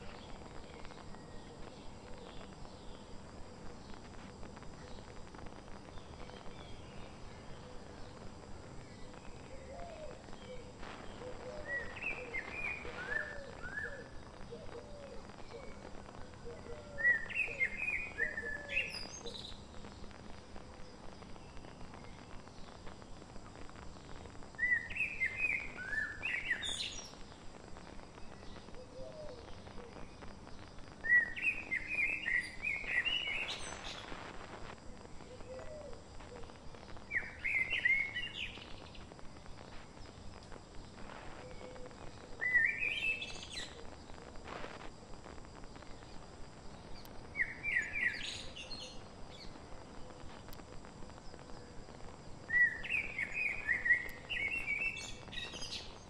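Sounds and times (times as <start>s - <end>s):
songbird whistling phrase: 11.6s - 14.1s, 24.6s - 27.0s, 31.0s - 33.8s, 42.4s - 43.7s, 52.5s - 55.9s
faint steady ticking: 19.6s - 24.6s, 49.0s - 52.5s.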